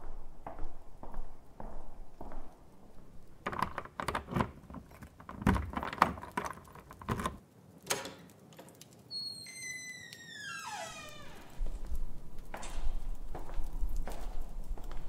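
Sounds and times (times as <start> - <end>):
irregular clicks and light knocks: 3.4 - 9.1.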